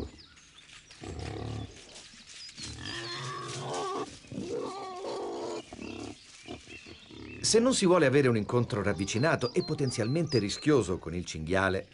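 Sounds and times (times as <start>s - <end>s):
wild boar grunting: 2.7s - 7.8s.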